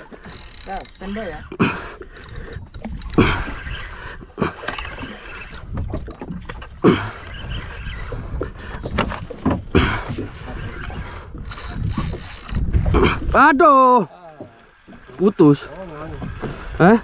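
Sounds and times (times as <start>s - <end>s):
water slapping boat: 0.0s - 17.0s
wind noise on microphone: 0.2s - 4.2s, 5.0s - 13.4s.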